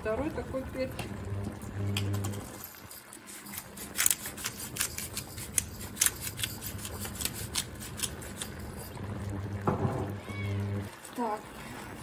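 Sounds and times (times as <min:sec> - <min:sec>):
pepper mill grinding: 0:01.9 - 0:09.1.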